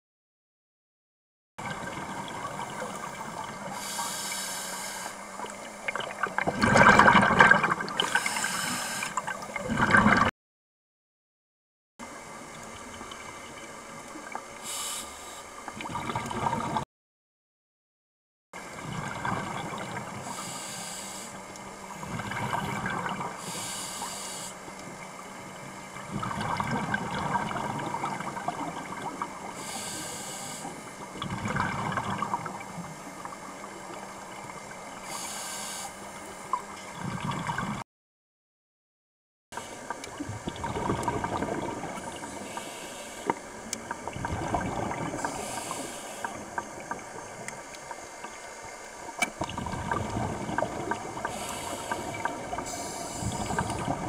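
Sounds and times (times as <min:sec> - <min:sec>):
diver exhaling bubbles: 0:01.6 - 0:10.3, 0:15.7 - 0:16.8, 0:18.7 - 0:20.5, 0:22.0 - 0:23.6, 0:26.0 - 0:29.6, 0:31.0 - 0:33.0, 0:36.9 - 0:37.8, 0:39.7 - 0:47.4, 0:49.3 - 0:54.0
underwater gurgling and bubbling: 0:01.6 - 0:10.3, 0:12.0 - 0:16.8, 0:18.6 - 0:37.8, 0:39.6 - 0:54.0.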